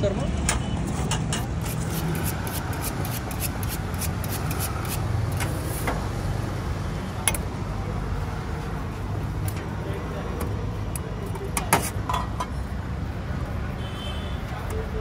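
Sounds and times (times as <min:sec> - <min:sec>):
street traffic rumble: 0:00.0 - 0:15.0
knife scraping on sharpening steel: 0:01.2 - 0:05.1.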